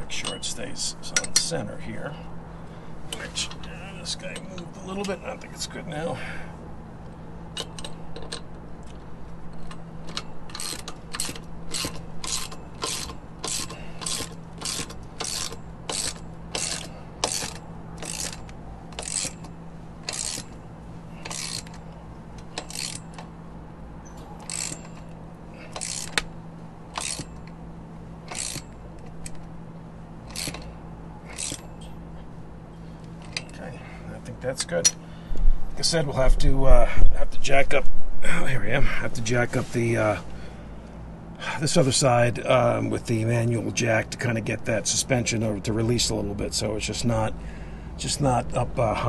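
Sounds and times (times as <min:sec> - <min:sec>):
ratchet wrench clicking: 0:07.5 - 0:20.6, 0:21.2 - 0:23.3, 0:24.4 - 0:26.3, 0:26.9 - 0:27.6, 0:28.3 - 0:29.5, 0:30.2 - 0:30.7, 0:31.3 - 0:31.7.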